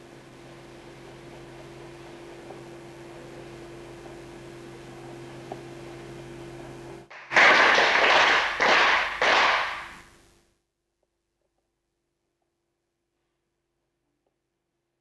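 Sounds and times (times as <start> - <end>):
steady hum: 0.0 - 10.7
group clapping in unison: 7.1 - 10.1.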